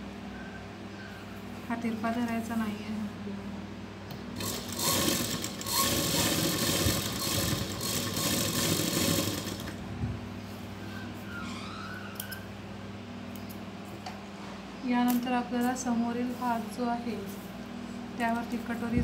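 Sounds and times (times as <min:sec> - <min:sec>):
sewing machine stitching: 0:04.4 - 0:09.8.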